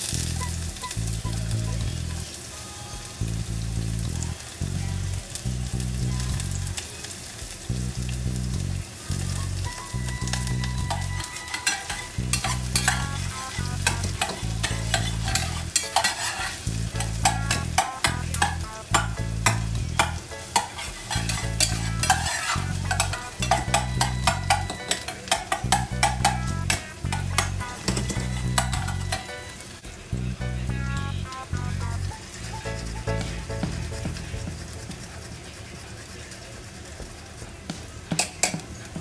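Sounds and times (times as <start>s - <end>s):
onion sizzling in pan: 0.0s - 39.0s
utensils scraping metal saucepan: 10.3s - 29.5s.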